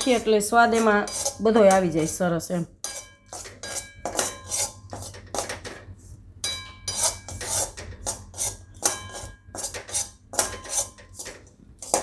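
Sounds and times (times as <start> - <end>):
spatula scraping flour in pan: 0.0 - 6.2, 6.9 - 12.0
metallic ring from pan: 2.8 - 4.8, 6.4 - 7.4, 8.8 - 9.5.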